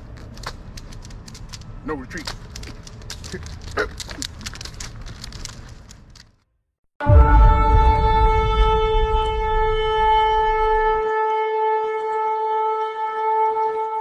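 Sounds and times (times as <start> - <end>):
low rumble: 7.0 - 11.0
shofar blast: 7.0 - 14.0.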